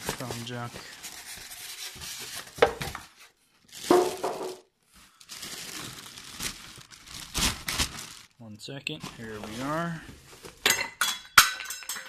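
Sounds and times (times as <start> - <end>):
plastic bag crinkling: 0.0 - 1.6, 3.6 - 10.7
packaging handling noises: 0.0 - 10.7.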